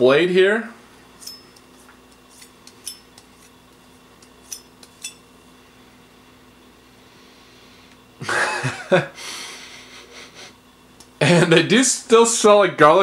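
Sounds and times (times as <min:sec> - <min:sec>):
metal clicks and clinks: 0:01.2 - 0:01.7, 0:02.7 - 0:03.3
fingers rubbing a knife blade: 0:01.2 - 0:03.6, 0:04.2 - 0:05.2.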